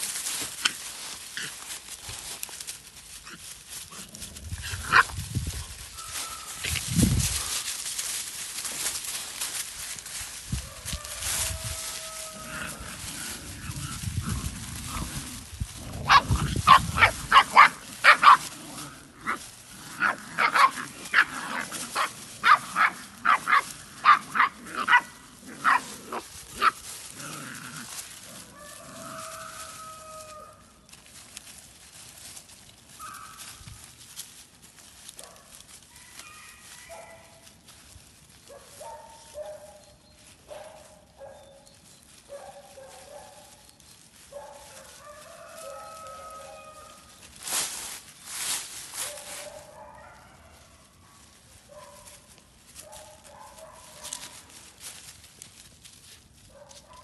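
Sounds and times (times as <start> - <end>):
puppies yelping: 4.7 - 9.6, 10.9 - 30.7, 39.3 - 47.4.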